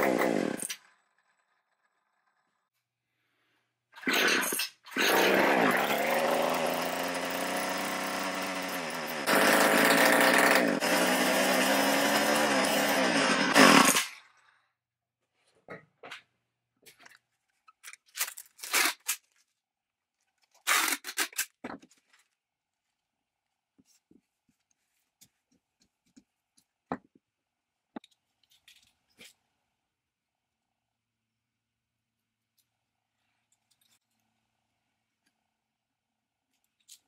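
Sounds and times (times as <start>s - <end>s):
small two-stroke drill engine: 0.0s - 2.5s, 4.1s - 14.5s.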